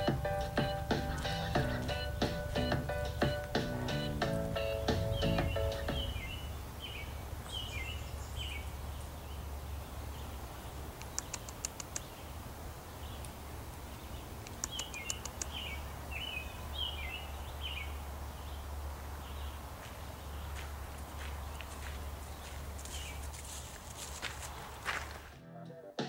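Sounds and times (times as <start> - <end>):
birds chirping: 0.0 - 25.3
fast high ticking: 14.4 - 15.6.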